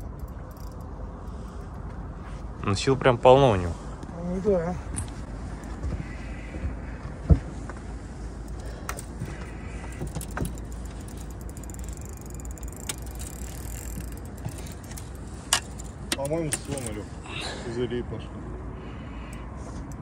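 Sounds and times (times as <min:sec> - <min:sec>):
fishing reel clicking and winding: 0:00.0 - 0:01.7, 0:08.5 - 0:17.0.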